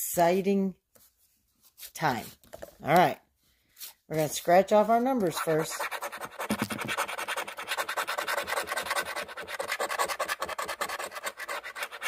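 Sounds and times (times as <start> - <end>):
coin scratching lottery ticket: 5.2 - 12.0.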